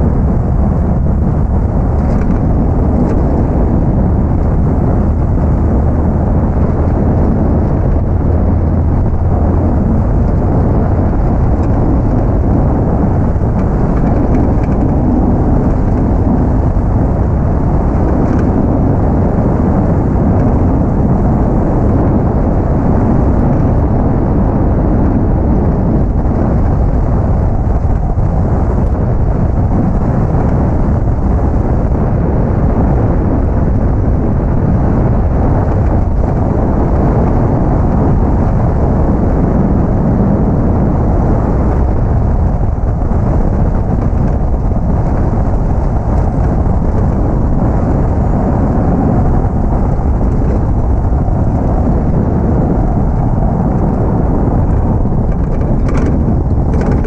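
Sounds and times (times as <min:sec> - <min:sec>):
tyre noise on road: 0:00.0 - 0:57.0
wind rushing past microphone: 0:00.0 - 0:57.0.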